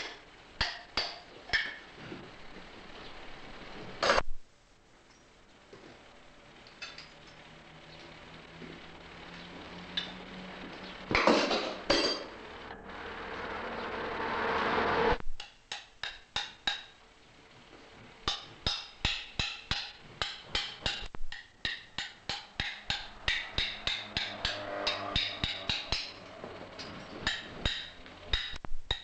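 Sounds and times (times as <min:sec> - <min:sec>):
hammer striking an anvil: 0:00.0 - 0:01.8, 0:15.4 - 0:17.0, 0:18.3 - 0:26.2, 0:26.8 - 0:29.0
swelling noise: 0:07.4 - 0:15.2, 0:21.7 - 0:28.6.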